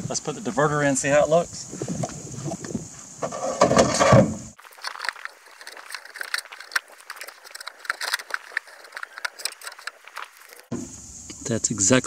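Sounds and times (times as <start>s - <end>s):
plastic scraping rustle: 2.6s - 10.7s.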